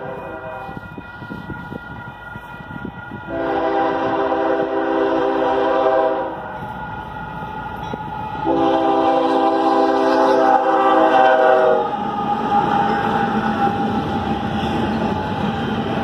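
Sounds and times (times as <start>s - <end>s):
locomotive air horn blasts: 0.0s - 0.9s, 3.3s - 6.6s, 8.4s - 12.0s.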